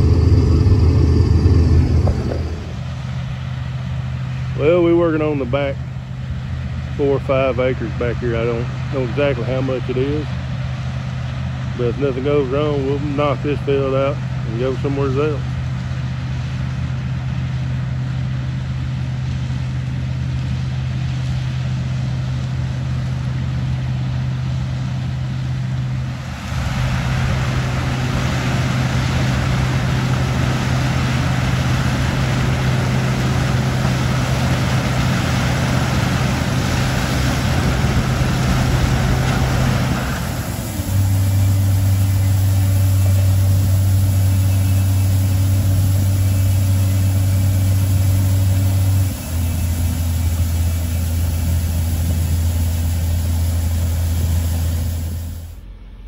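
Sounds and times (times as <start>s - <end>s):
combine harvester engine: 0.0s - 56.0s
rush of threshing: 20.4s - 55.5s.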